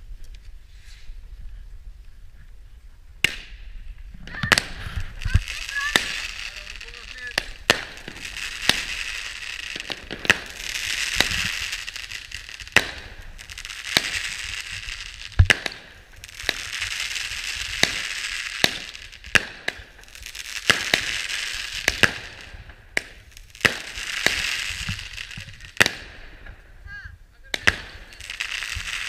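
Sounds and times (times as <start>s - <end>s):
crackling hiss of fireworks: 0.0s - 29.0s
fireworks bangs: 3.2s - 29.0s.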